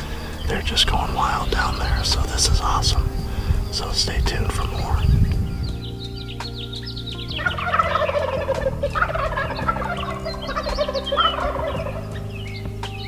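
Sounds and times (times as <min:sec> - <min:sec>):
turkeys gobbling: 0:07.3 - 0:12.5.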